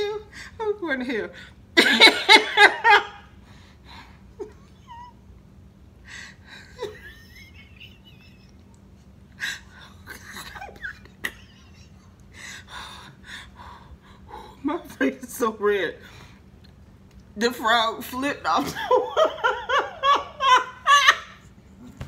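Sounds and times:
woman laughing hard: 1.8 - 3.3, 4.4 - 5.2, 6.4 - 8.8, 9.4 - 12.7, 18.6 - 21.5.

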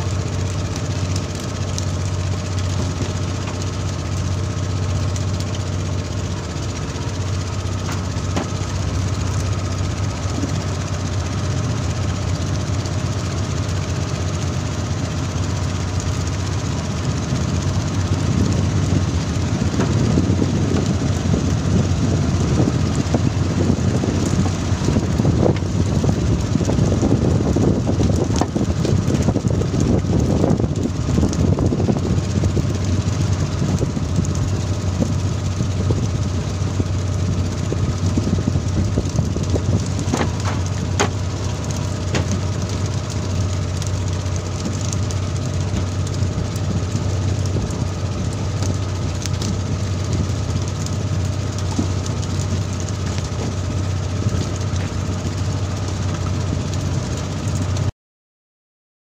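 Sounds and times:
boat engine running: 0.0 - 57.9.

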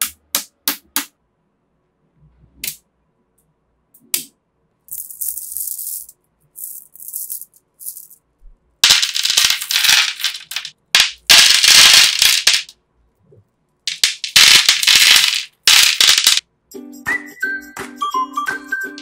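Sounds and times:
pebbles rattling and clattering: 4.9 - 8.2, 8.8 - 12.7, 13.9 - 16.4.

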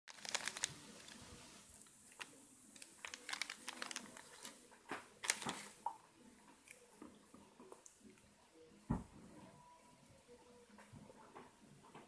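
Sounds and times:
plastic bag crinkling: 0.1 - 4.6, 5.2 - 5.8.

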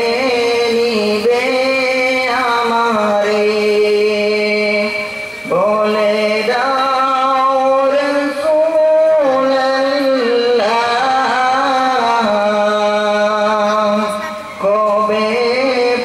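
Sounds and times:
man singing devotional song: 0.0 - 16.0.

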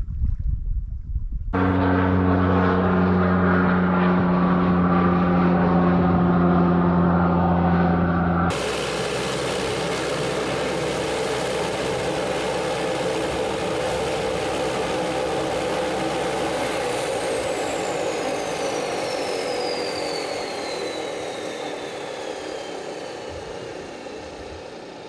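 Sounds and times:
high whine falling in pitch: 1.5 - 18.8
plane engine droning: 1.5 - 25.0.

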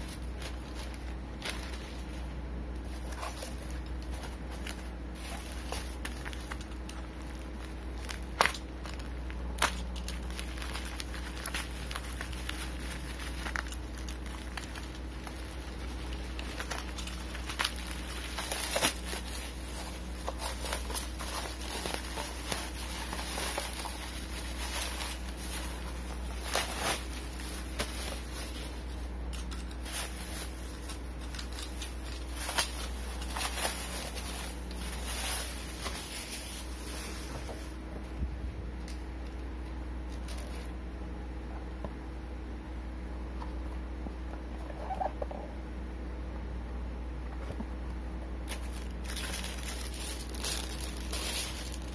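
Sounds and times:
bubble wrap and tape crackling: 0.0 - 38.2, 38.8 - 40.8, 48.4 - 51.9.

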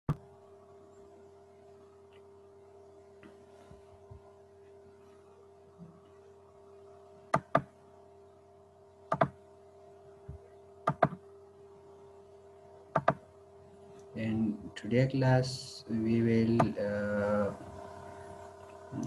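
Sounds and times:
steady electrical hum: 0.1 - 19.0
sharp clicks at a computer: 7.3 - 7.7, 9.1 - 9.4, 10.9 - 11.2, 13.0 - 13.2.

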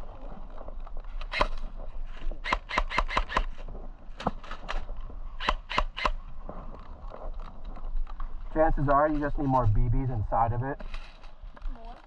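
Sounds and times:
airsoft rifle clicking: 2.4 - 3.6, 4.2 - 6.2.

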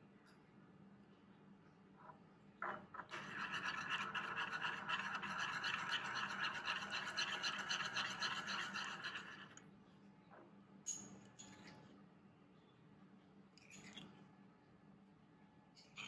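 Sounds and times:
metal spoon scraping ceramic bowl: 3.1 - 9.6.

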